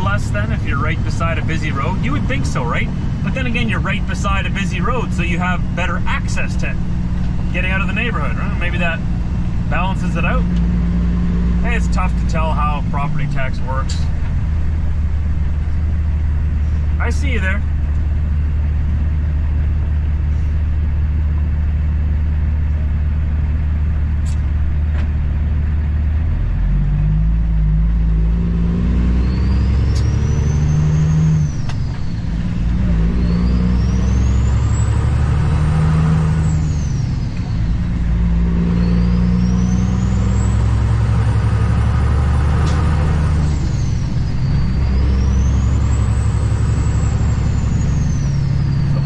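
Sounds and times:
diesel truck engine accelerating: 0.0s - 49.0s
high engine whistle: 29.1s - 41.9s, 42.6s - 49.0s.

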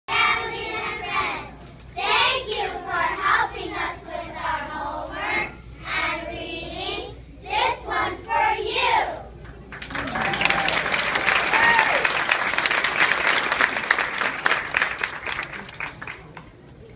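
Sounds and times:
children singing together: 0.1s - 9.2s.

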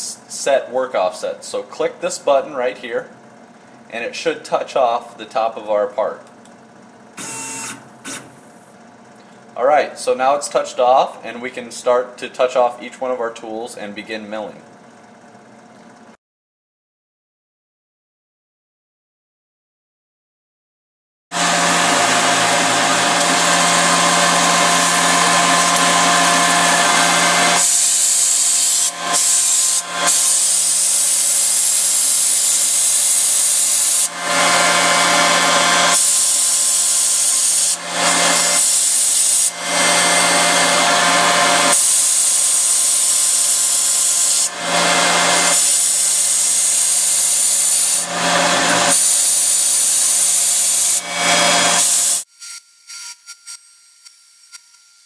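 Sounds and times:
mill spindle machining whine: 6.3s - 9.6s, 21.4s - 52.2s.

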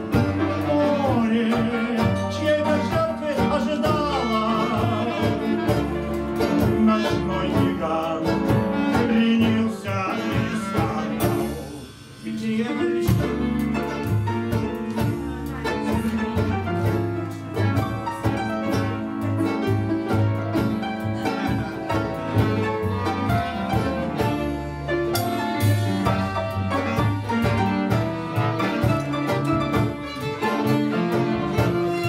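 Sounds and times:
acoustic band playing tango: 0.0s - 32.0s
double bass marking beat: 0.0s - 32.0s.

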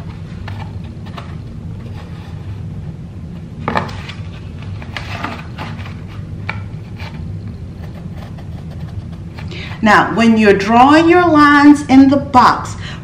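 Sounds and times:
steady low hum: 0.0s - 13.0s
pencil scratching on cardboard: 7.8s - 9.2s.

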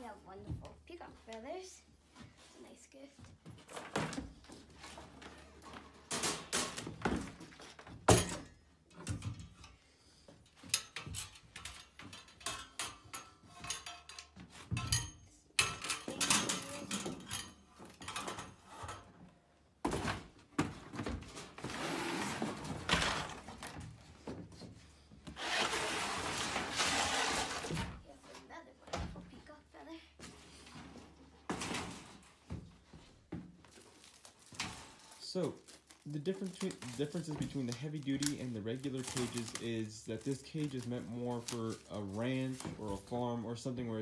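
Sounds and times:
knocks clatters and thuds: 3.2s - 9.7s, 10.3s - 25.4s
packaging rustling: 33.7s - 43.1s.

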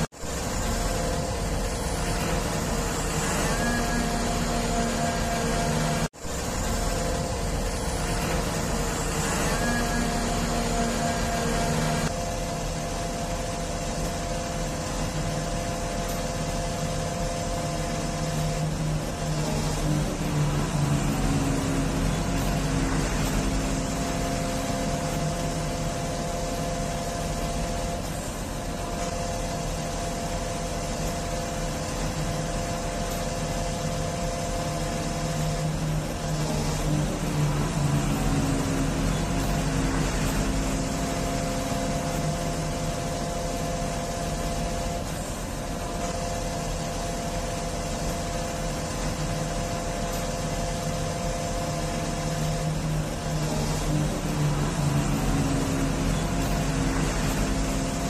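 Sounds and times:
crane diesel engine and hydraulics: 0.0s - 58.0s.

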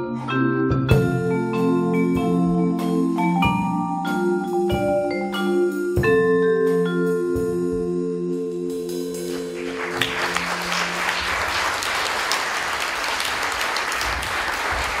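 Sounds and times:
vibraphone chord ringing: 0.1s - 11.0s
audience applause: 9.3s - 15.0s.

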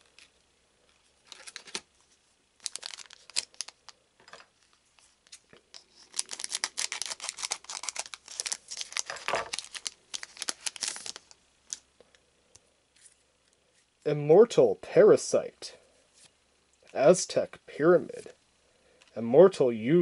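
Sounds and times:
wrapper crinkling and tearing: 1.2s - 1.9s, 2.6s - 4.0s, 5.2s - 11.8s.

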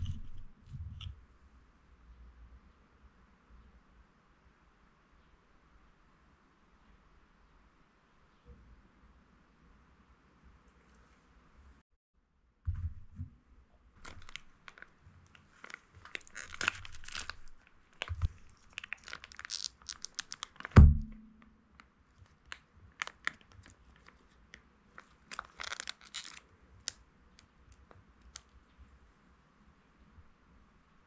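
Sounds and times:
plastic pouch crinkling: 14.0s - 20.8s, 21.8s - 28.6s.

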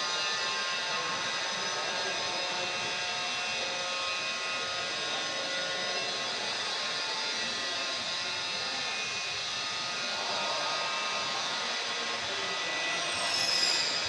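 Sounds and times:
high falling squeal: 12.6s - 14.0s.

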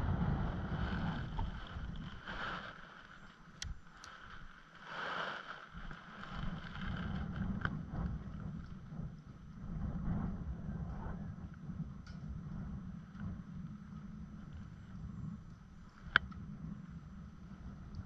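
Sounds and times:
wind buffeting microphone: 0.0s - 4.6s, 5.7s - 18.0s
faint clicks: 1.3s - 4.8s.

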